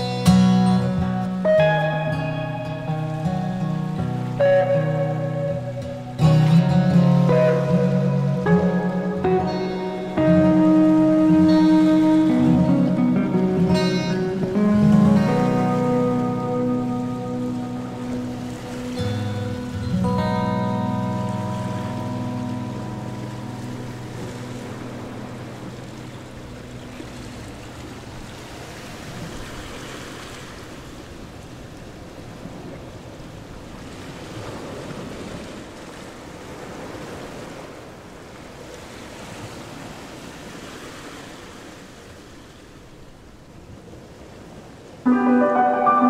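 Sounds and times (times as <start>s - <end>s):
background music: 0.0s - 26.0s, 45.1s - 46.0s.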